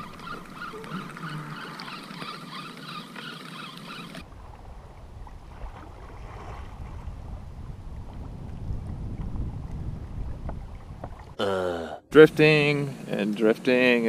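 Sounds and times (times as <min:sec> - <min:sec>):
water lapping against kayak: 0:00.0 - 0:11.4
wind rumble on microphone: 0:04.2 - 0:11.4.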